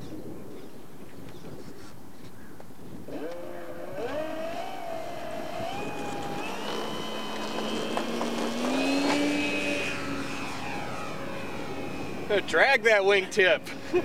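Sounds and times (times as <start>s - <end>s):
model airplane motor whine: 3.1s - 14.0s.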